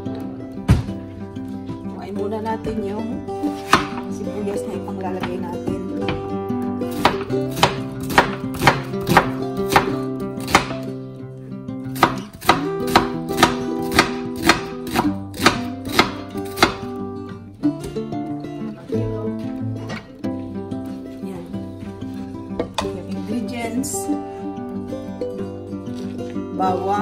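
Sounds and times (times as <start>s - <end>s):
background music: 0.0s - 27.0s
knife chopping on wooden board: 3.7s - 4.0s, 6.9s - 10.8s, 12.0s - 16.9s.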